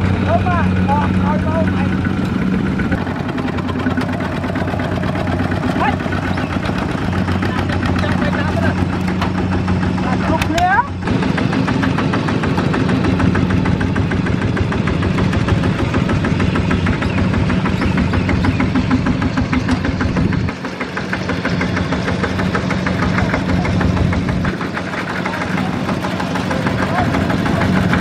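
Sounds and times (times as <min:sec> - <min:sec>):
diesel engine chugging: 0:00.0 - 0:28.0.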